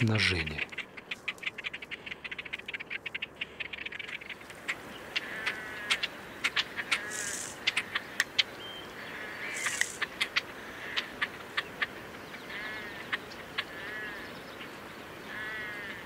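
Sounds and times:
birds ticking calls: 0:00.0 - 0:16.0
harsh nasal bird calls: 0:00.0 - 0:16.0
high hissing sounds: 0:07.0 - 0:07.6, 0:09.5 - 0:10.0.

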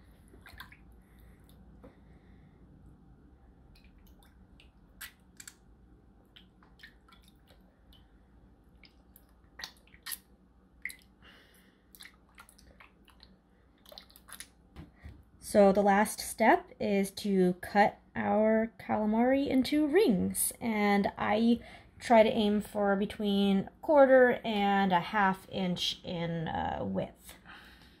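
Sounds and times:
wet squishing in water: 0:00.0 - 0:01.7, 0:03.6 - 0:11.2, 0:11.8 - 0:14.7
small water splashes: 0:00.2 - 0:01.6, 0:06.2 - 0:11.2.

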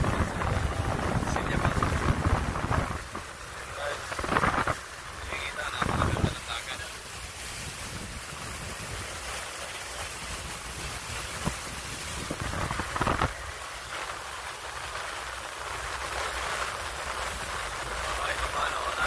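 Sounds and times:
wind rushing: 0:00.0 - 0:06.5, 0:10.3 - 0:13.6
low rumble: 0:00.0 - 0:06.6
water rushing: 0:00.0 - 0:19.0.

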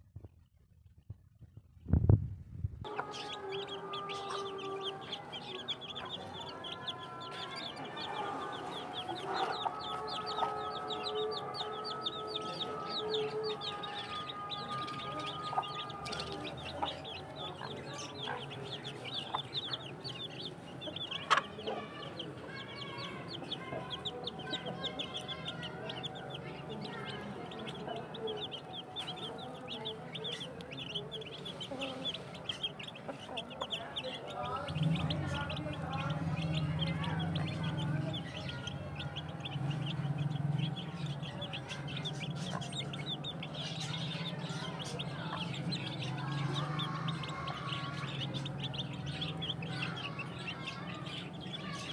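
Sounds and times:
chicks peeping: 0:02.8 - 0:51.9
hen clucking: 0:02.9 - 0:43.7.

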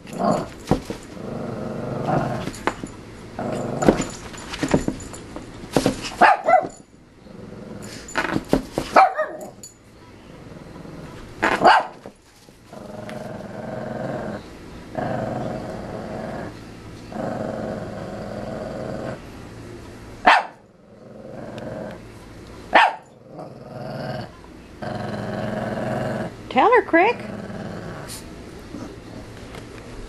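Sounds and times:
dog growling: 0:00.0 - 0:02.7, 0:03.4 - 0:04.2, 0:07.2 - 0:08.4, 0:10.2 - 0:11.7, 0:12.7 - 0:19.3, 0:20.7 - 0:22.1, 0:23.1 - 0:26.4, 0:27.0 - 0:29.4.

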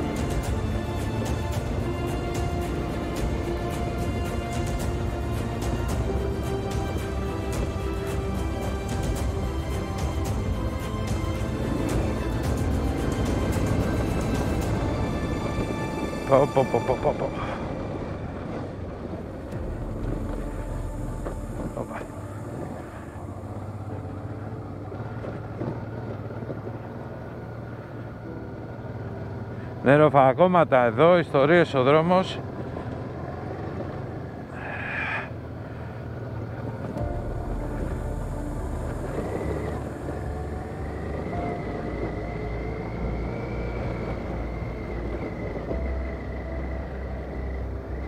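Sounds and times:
tyre and road noise: 0:00.0 - 0:48.0
motorcycle engine running: 0:17.6 - 0:48.0.

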